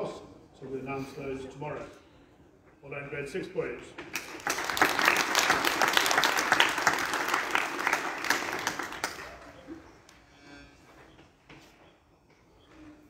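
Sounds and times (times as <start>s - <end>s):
audience applauding: 4.1s - 9.9s.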